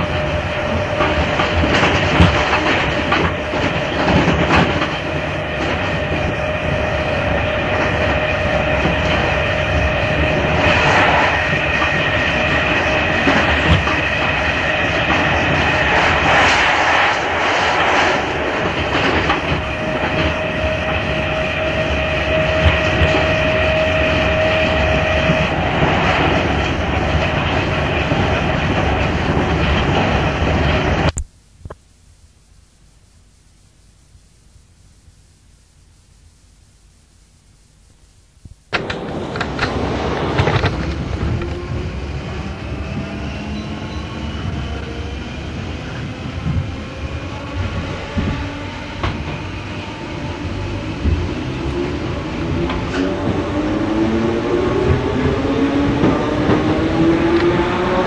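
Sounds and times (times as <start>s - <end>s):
train rolling noise: 0.0s - 31.2s, 38.7s - 58.0s.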